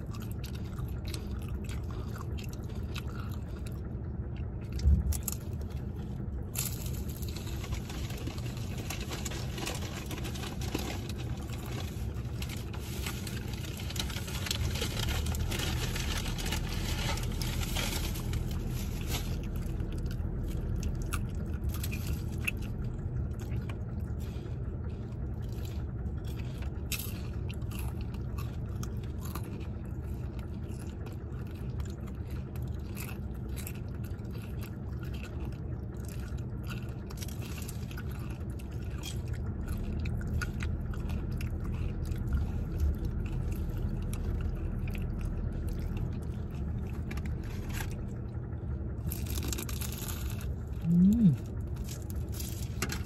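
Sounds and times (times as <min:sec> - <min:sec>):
crunching crispy food: 0:00.0 - 0:53.0
low rumble: 0:00.0 - 0:53.0.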